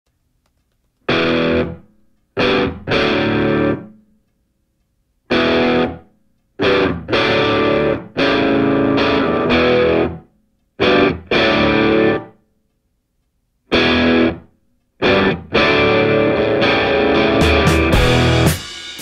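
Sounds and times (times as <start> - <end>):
distorted electric guitar chords: 1.1 - 4.0, 5.3 - 6.0, 6.6 - 12.4, 13.7 - 19.0.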